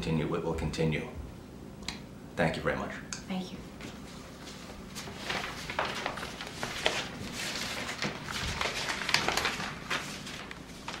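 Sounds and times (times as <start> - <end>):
clothing rustle: 3.9 - 11.0.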